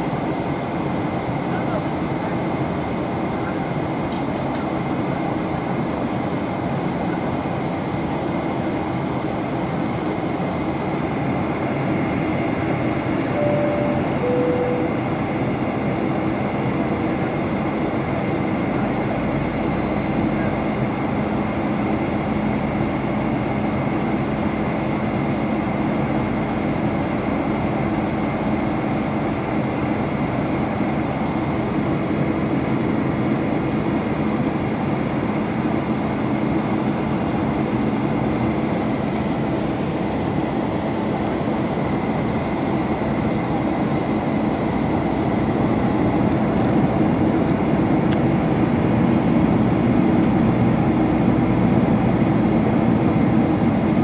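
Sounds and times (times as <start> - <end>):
jet engines and airflow rushing: 0.0 - 54.0
low steady hum: 12.1 - 16.7
faint high whine: 13.2 - 15.9.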